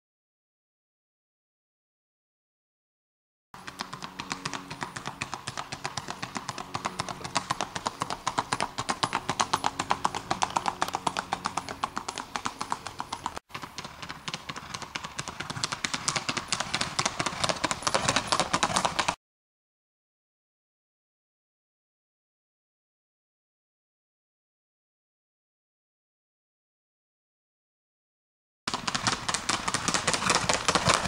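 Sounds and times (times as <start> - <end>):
shod hooves clip-clopping on road: 3.6 - 19.2, 28.7 - 31.0.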